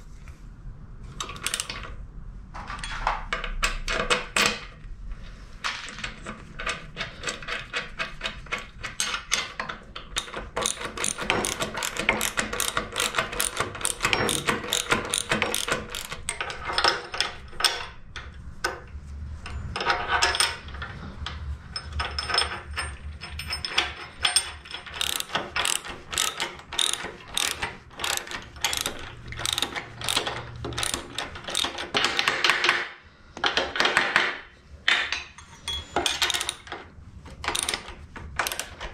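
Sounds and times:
ratchet wrench clicking: 10.1s - 16.4s, 24.8s - 32.4s, 37.5s - 37.8s.

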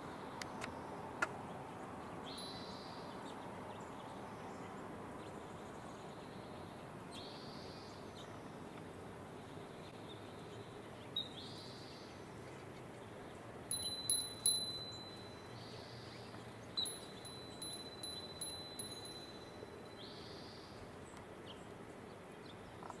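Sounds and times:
high metallic chime: 2.4s - 3.1s, 13.7s - 15.7s, 16.8s - 20.2s.

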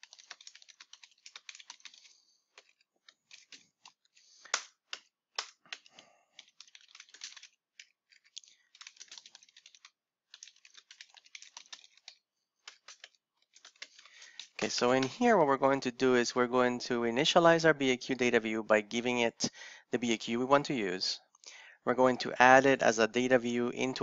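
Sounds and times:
typing on computer keyboard: 0.0s - 15.1s.

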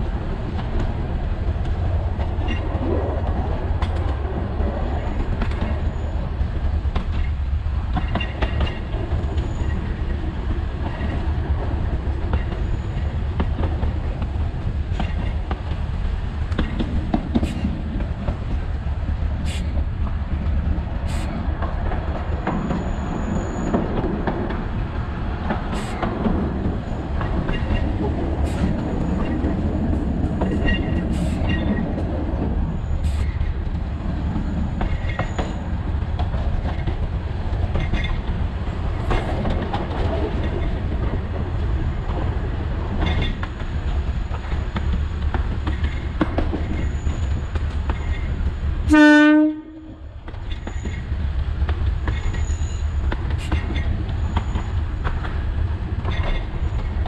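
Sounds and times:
train rumbling: 0.0s - 57.0s
clacks from rail joints: 0.4s - 18.7s, 19.4s - 57.0s
high wheel squeals: 22.6s - 23.8s, 46.8s - 47.6s, 52.3s - 53.0s.

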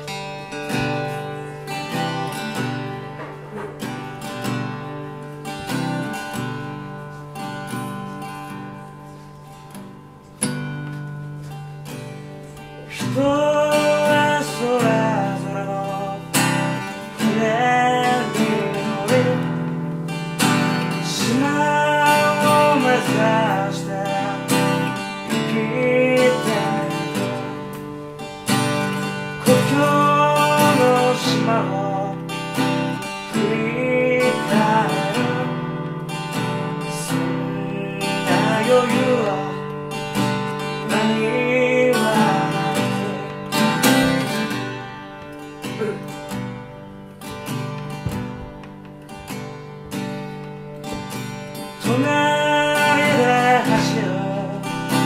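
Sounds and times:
strummed acoustic guitar: 0.0s - 55.0s
man singing: 12.6s - 44.9s, 45.6s - 46.6s, 51.6s - 55.0s.

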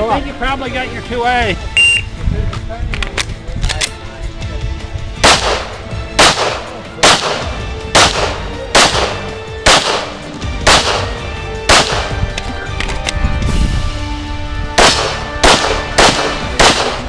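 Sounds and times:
background music: 0.0s - 17.0s
pistol gunshots: 5.2s - 12.3s, 14.8s - 17.0s.

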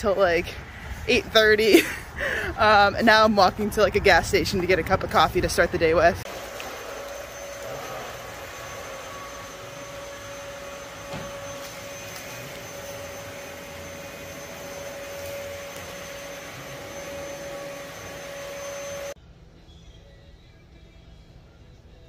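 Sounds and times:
machine whirring and humming: 6.2s - 19.2s.

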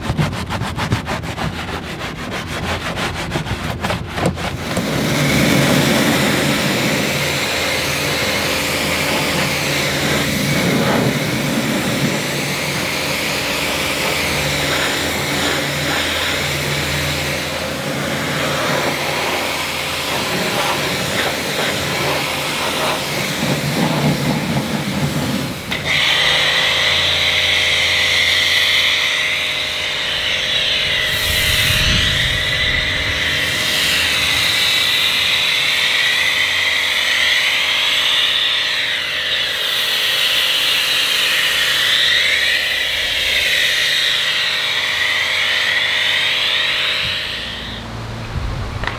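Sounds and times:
scrubbing: 0.0s - 6.8s
pump motor humming: 3.1s - 48.9s
pressure washer spraying water: 4.2s - 48.9s.

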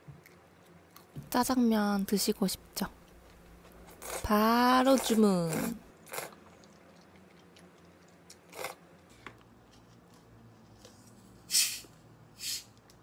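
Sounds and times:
bottle carbonation hiss: 11.5s - 11.8s, 12.4s - 12.7s.

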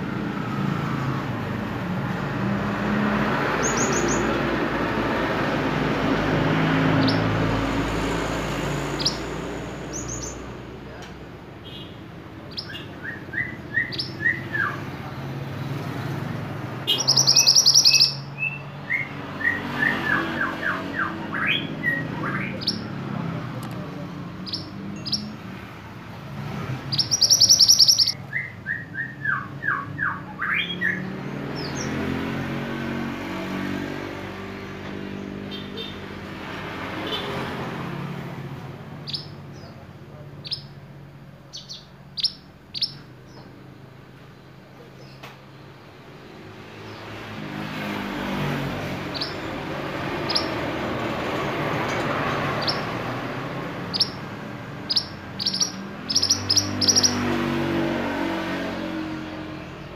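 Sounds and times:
motor vehicle hum: 0.0s - 28.6s, 29.5s - 59.9s
bird rapid trill: 3.3s - 4.6s, 6.6s - 8.0s, 8.6s - 10.5s, 16.9s - 23.0s, 24.4s - 25.4s, 26.4s - 32.0s, 41.5s - 43.1s, 48.5s - 57.7s
bird singing whistled notes: 3.6s - 4.4s, 7.0s - 7.3s, 9.0s - 9.3s, 12.5s - 14.8s, 16.9s - 22.9s, 24.4s - 25.4s, 26.9s - 32.0s, 39.0s - 39.7s, 40.4s - 40.8s, 41.5s - 43.4s, 49.1s - 49.5s, 50.2s - 50.6s, 52.6s - 52.9s, 53.9s - 57.3s.

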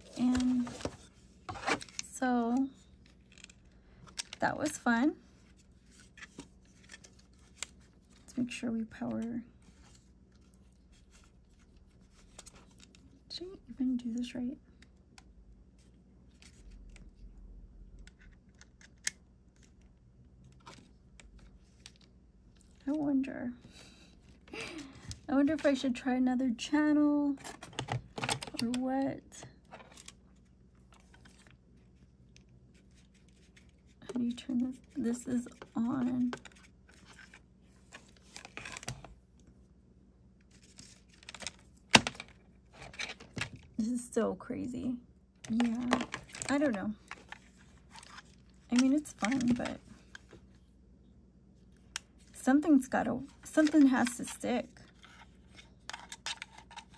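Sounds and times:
cables and plastic units handled: 0.0s - 13.2s, 17.9s - 22.9s, 27.4s - 39.5s, 40.4s - 43.8s, 45.4s - 50.6s, 53.2s - 56.9s.

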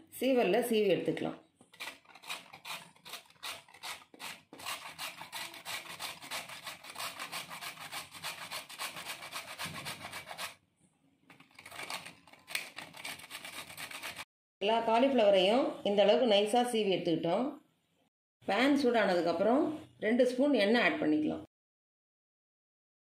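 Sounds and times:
cauliflower rasping on grater: 1.8s - 10.6s, 11.6s - 14.2s.

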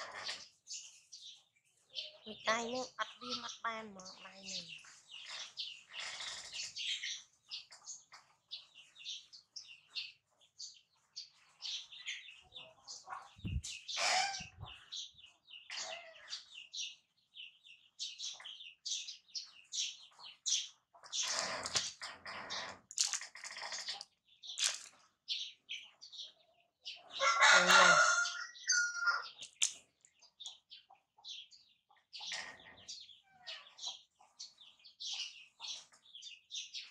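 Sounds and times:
birds chirping: 0.0s - 36.9s
chickens clucking: 11.0s - 16.0s, 25.8s - 33.0s
loud fowl call: 27.2s - 29.2s.

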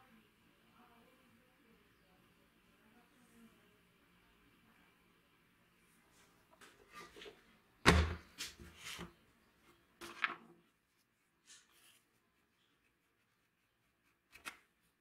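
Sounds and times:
wooden box thud on table: 7.9s - 8.2s.

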